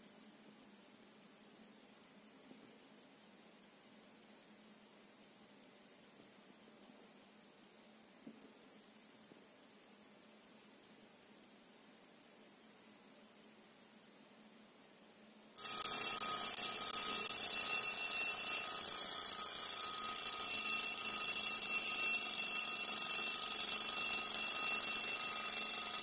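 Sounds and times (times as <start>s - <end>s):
alarm clock ringing: 15.6s - 26.0s.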